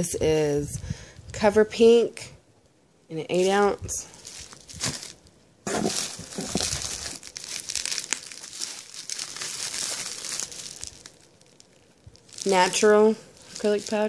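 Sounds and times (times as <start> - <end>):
bubble wrap crinkling: 3.3 - 14.0.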